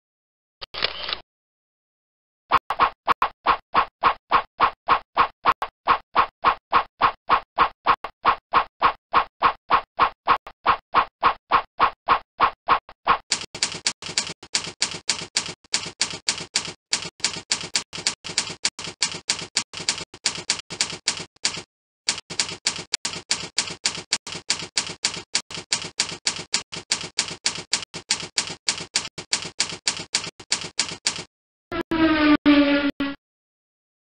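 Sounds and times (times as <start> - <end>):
typewriter keystroke clicks: 13.3 - 31.3.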